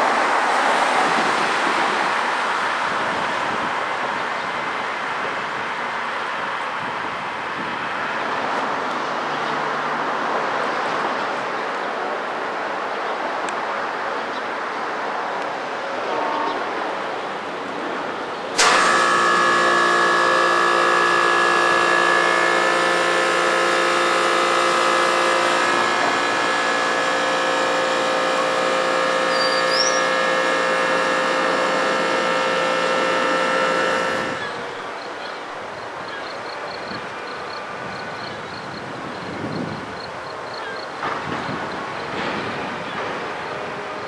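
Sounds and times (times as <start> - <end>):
machine hum with held tones: 18.6 - 38.4.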